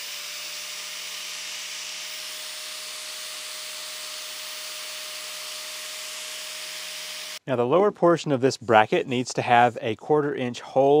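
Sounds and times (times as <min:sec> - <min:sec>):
angle grinder grinding metal: 0:00.0 - 0:07.4.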